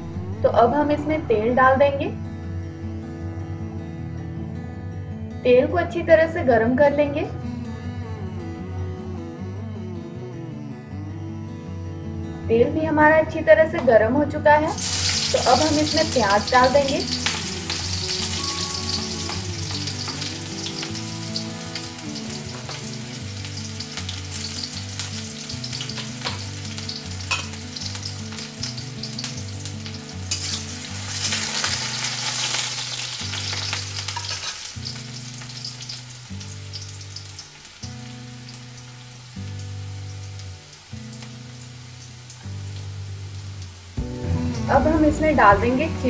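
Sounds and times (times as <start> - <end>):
onion sizzling in hot oil: 14.7 - 45.9.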